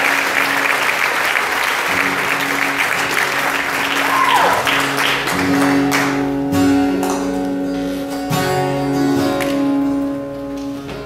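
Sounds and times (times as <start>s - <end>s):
audience applauding: 0.0s - 6.4s
acoustic guitar notes: 0.0s - 11.0s.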